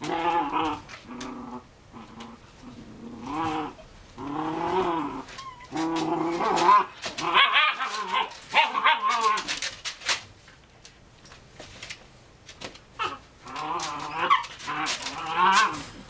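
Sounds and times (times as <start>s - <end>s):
puppies yipping and growling: 3.1s - 9.7s, 13.0s - 16.0s.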